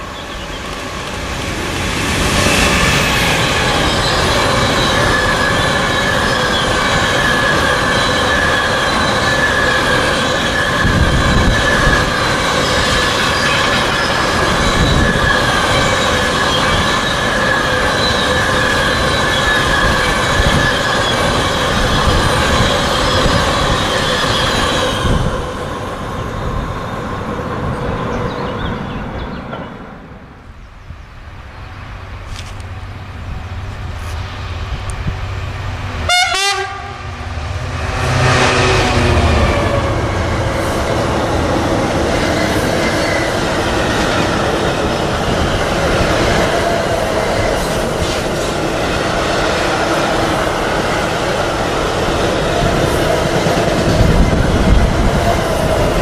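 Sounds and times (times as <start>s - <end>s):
train wagons rolling: 0.0s - 29.8s
high-pitched wheel squeal: 2.4s - 25.2s.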